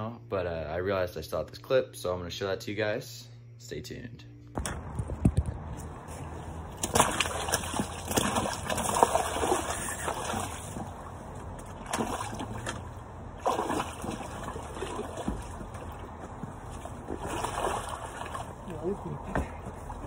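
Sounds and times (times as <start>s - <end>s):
water splashing: 4.8s - 20.0s.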